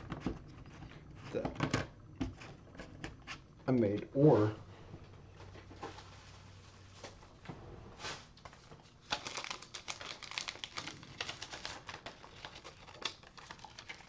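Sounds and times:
paper sleeve rustling and crinkling: 5.6s - 14.0s.

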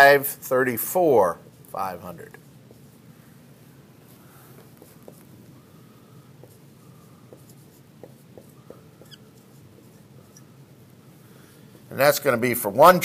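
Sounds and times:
marker squeaking on whiteboard: 4.7s - 5.8s, 6.4s - 11.0s
marker ticks on board: 7.3s - 9.2s.

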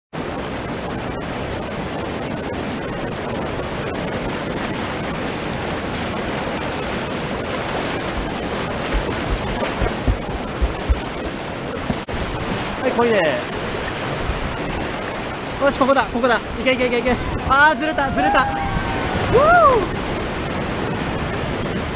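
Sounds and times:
river rapids rushing: 0.2s - 21.9s
dull low thumps: 8.0s - 12.3s.

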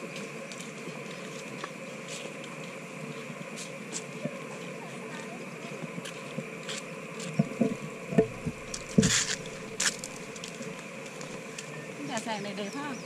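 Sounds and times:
faint outdoor background: 0.0s - 13.0s
footsteps on concrete: 6.0s - 11.3s
shoe scuffs: 8.8s - 10.1s.

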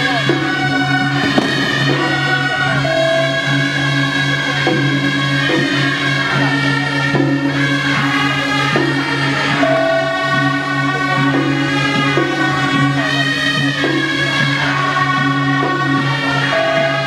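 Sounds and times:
held pitched tones: 0.0s - 17.0s
low drone: 0.0s - 17.0s
steady beat: 0.0s - 17.0s.

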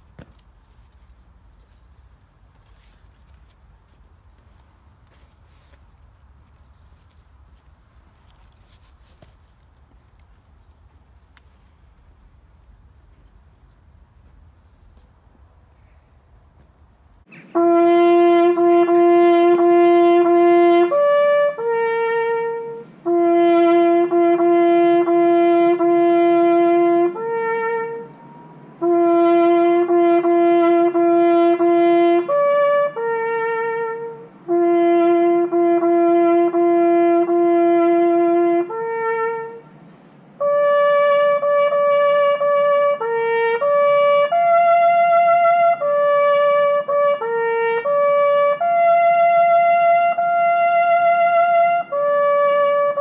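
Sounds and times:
solo trumpet ceremonial call: 17.3s - 53.0s.

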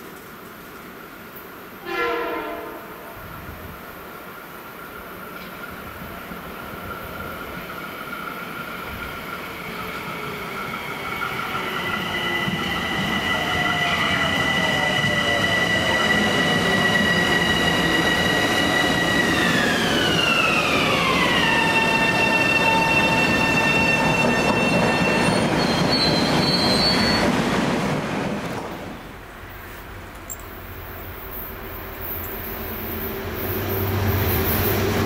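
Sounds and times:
electric train rumble and motor whine: 4.9s - 27.2s, 30.1s - 35.0s
train brake squeal: 9.7s - 27.3s.

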